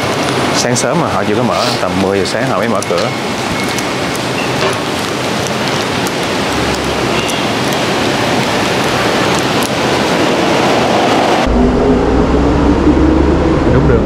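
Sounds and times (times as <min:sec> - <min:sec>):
low hum: 0:10.4 - 0:14.0.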